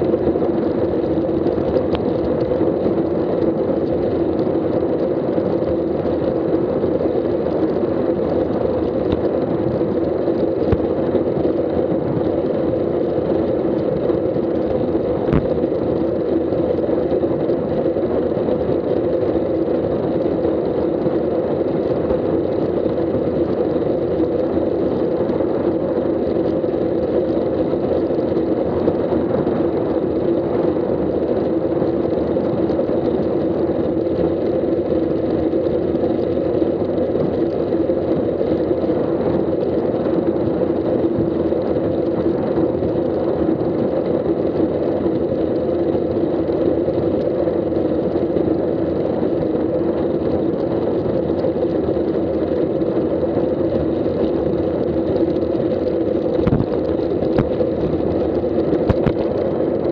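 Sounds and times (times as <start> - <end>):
wind buffeting microphone: 56.4 - 58.2.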